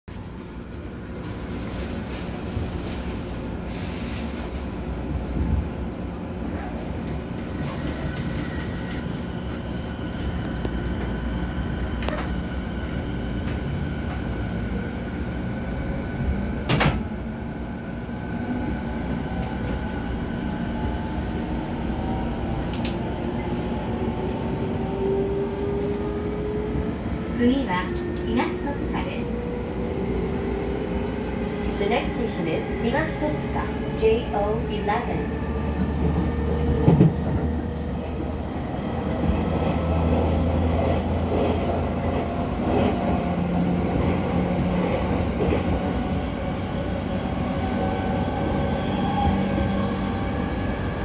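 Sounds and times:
train doors sliding shut: 6.5 - 9.2, 16.6 - 17.2, 35.6 - 38.1.

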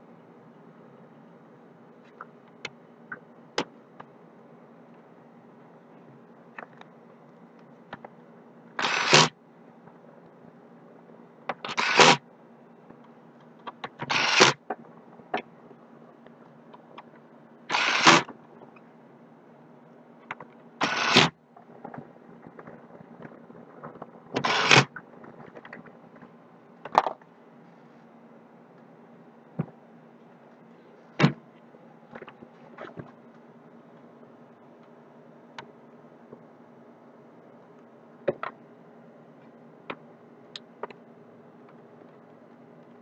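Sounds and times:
faint steady hum: 0.0 - 43.0.

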